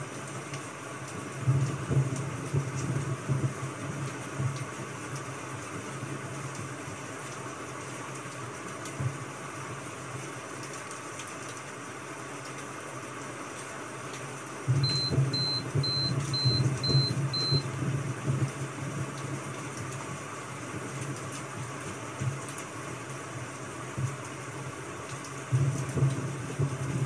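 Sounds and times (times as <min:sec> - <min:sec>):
steady hiss like rain: 0:00.0 - 0:27.0
timer beeping: 0:14.8 - 0:17.6.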